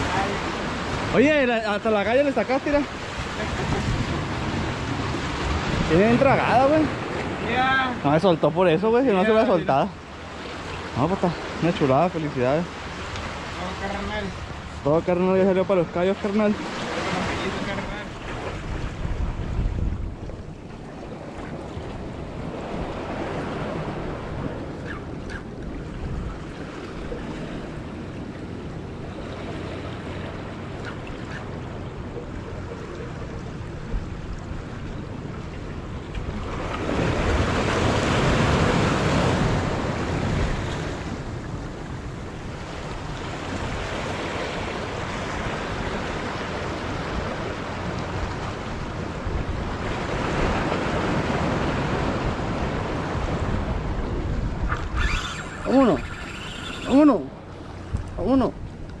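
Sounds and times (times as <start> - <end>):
waves washing against rocks: 0.0 - 10.6
wind on the microphone: 2.6 - 8.2, 16.5 - 59.0.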